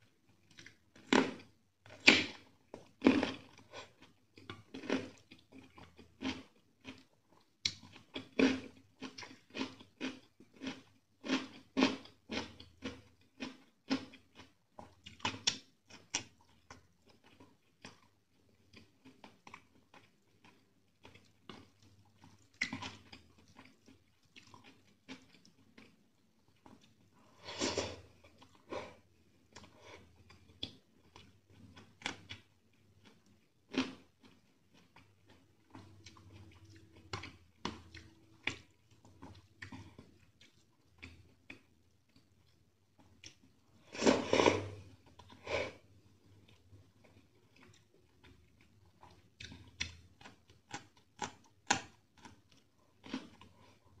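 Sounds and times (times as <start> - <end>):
chewing and wet mouth smacks: 0.3 - 0.8, 13.4 - 27.0, 29.5 - 43.6, 46.4 - 53.8.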